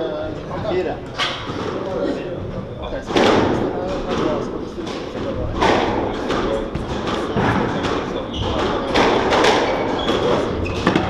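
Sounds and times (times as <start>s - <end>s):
squash ball hitting walls: 3.0s - 11.0s.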